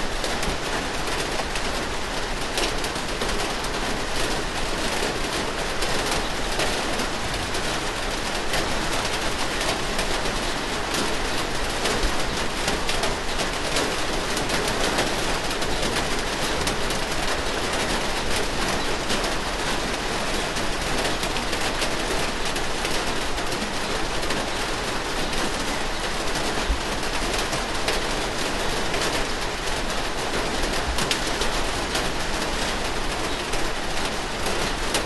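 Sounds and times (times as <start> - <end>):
steady rain falling: 0.0 - 35.0.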